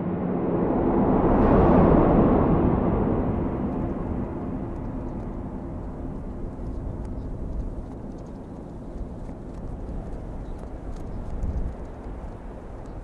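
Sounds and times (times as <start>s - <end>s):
low steady rumbling: 0.0s - 13.0s
faint crackles: 3.6s - 13.0s.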